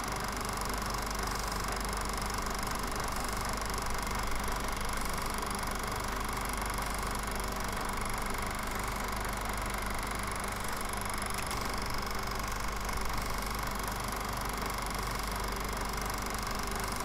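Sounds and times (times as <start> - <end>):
film projector whirring and clattering: 0.0 - 17.0.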